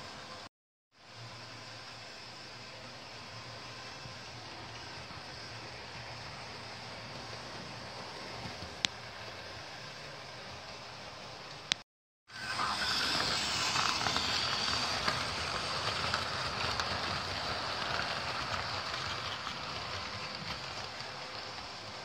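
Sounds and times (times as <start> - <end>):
small electric motor whirr: 12.3 - 19.3
wheels rattling on rails: 12.4 - 22.0.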